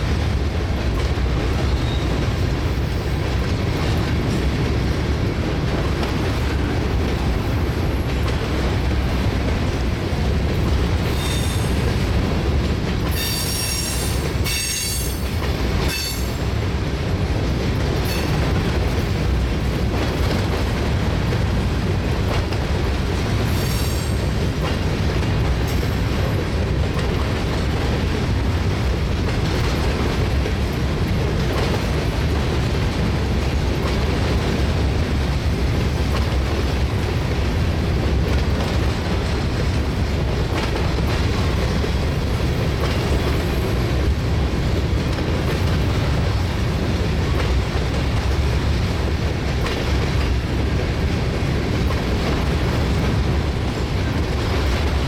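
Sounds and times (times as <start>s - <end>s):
freight train rumbling and clattering: 0.0s - 55.0s
high-pitched wheel squeals: 11.2s - 11.7s.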